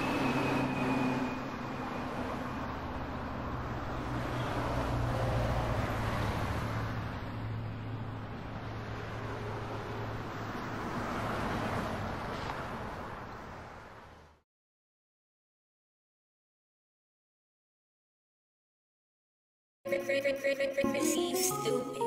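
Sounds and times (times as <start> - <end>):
engine hum: 0.0 - 14.4.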